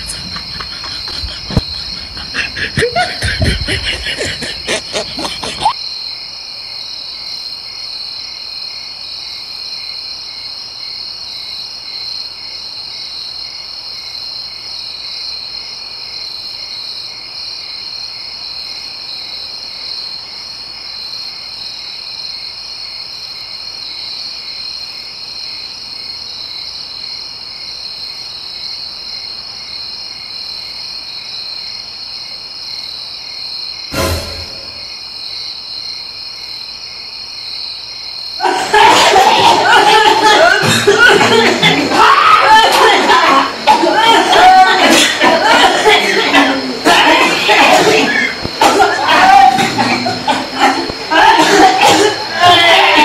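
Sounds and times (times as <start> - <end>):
frogs calling: 0.0 - 6.2, 37.5 - 53.0
crickets trilling: 0.0 - 53.0.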